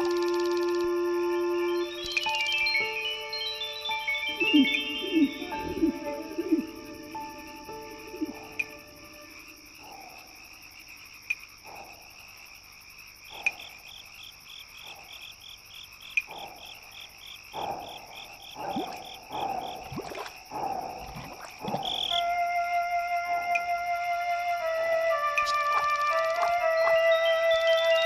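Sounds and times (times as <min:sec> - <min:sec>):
fast pulsed chirping: 0:00.0 - 0:10.1
high insect drone: 0:00.0 - 0:28.0
frog-like croaks: 0:04.3 - 0:22.4.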